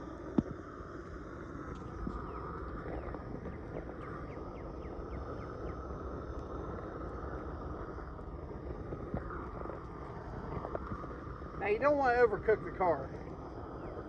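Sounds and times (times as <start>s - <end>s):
propane torch flame rushing: 0.0s - 14.0s.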